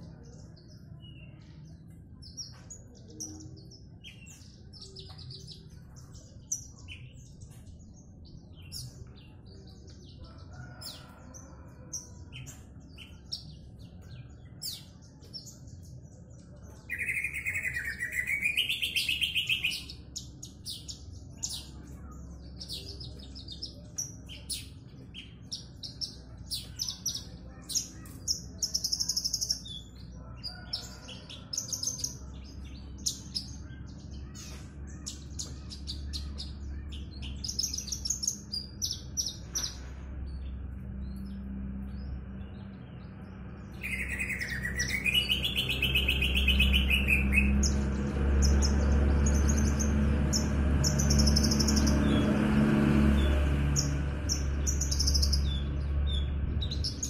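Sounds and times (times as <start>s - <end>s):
bird chirping and trilling: 12.0s - 39.7s, 43.7s - 52.4s.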